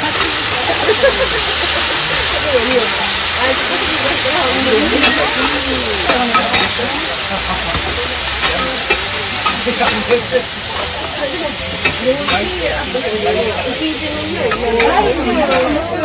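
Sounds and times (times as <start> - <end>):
noodles sizzling on griddle: 0.0 - 16.0
metal spatulas scraping: 4.6 - 6.9, 8.4 - 11.0, 11.8 - 13.0
metal spatulas clacking: 4.6 - 7.0, 7.7 - 11.0, 11.8 - 13.0, 14.5 - 15.9.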